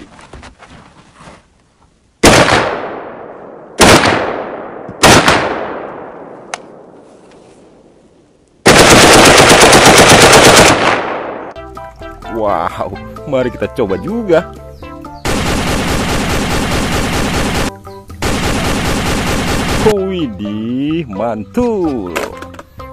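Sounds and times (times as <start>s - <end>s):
full-automatic gunfire burst: 2.2s - 6.3s, 8.6s - 11.5s, 15.2s - 19.9s
rifle shots echoing: 2.2s - 7.0s, 8.6s - 11.6s, 15.2s - 19.9s.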